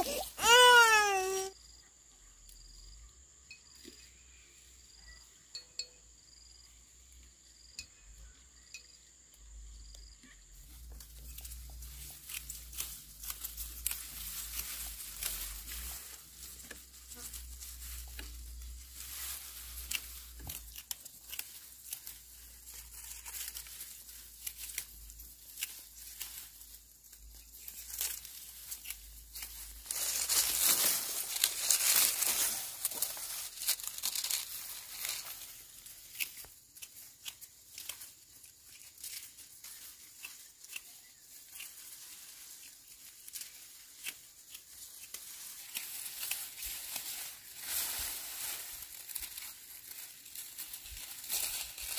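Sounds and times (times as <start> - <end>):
dry stalks rustling and snapping: 10.8 - 51.9.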